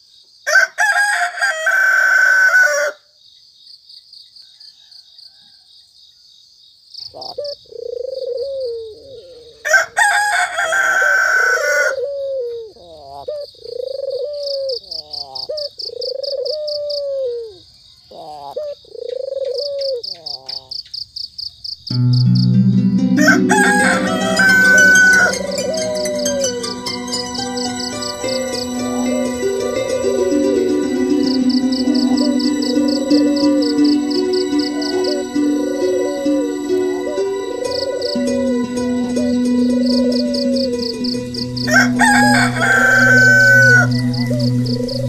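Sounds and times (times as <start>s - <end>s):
rooster crowing: 0.5s - 3.0s, 4.4s - 5.9s, 9.4s - 12.6s, 23.1s - 30.4s, 39.9s - 45.0s
insects chirring: 11.0s - 45.0s
animal low rising-and-falling call: 23.0s - 45.0s.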